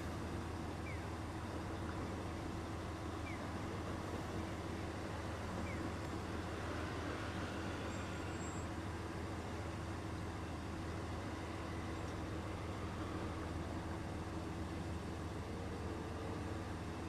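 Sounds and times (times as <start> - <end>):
low engine hum: 0.0 - 17.0
cars and motorbikes passing: 3.7 - 10.1.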